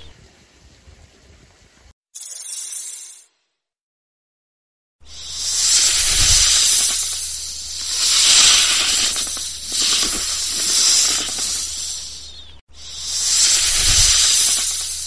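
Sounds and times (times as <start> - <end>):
snake hissing: 5.0 - 15.0.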